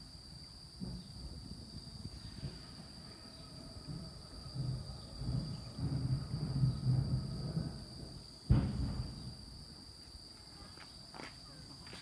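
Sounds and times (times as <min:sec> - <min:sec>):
insects droning: 0:00.0 - 0:12.0
low uneven rumble: 0:00.8 - 0:09.9.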